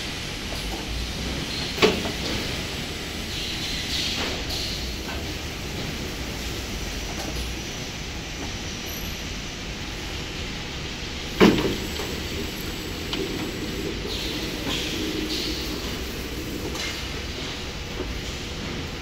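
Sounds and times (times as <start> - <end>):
conveyor machinery running: 0.0 - 19.0.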